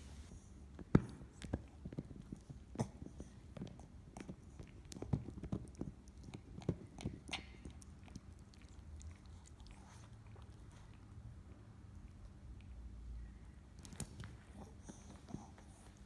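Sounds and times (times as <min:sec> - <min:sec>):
dog chewing toy: 0:00.7 - 0:12.8.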